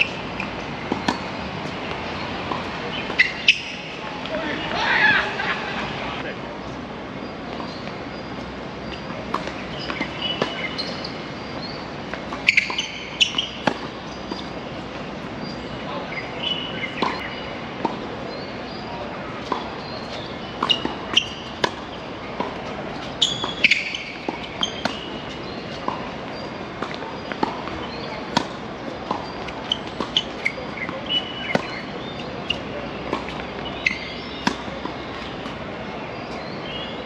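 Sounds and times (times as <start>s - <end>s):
tennis ball hit by rackets: 0.0s - 4.7s, 9.2s - 14.6s, 16.4s - 18.0s, 19.4s - 35.6s
shoe squeaks: 2.9s - 4.0s, 8.8s - 14.6s, 23.0s - 26.6s, 29.2s - 35.5s.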